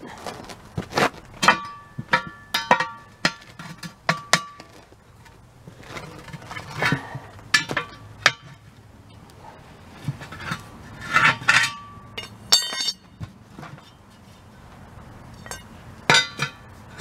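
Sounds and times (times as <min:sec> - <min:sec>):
pry bar clanking on wheel rim: 0:01.4 - 0:08.7, 0:10.0 - 0:14.0, 0:15.4 - 0:17.0.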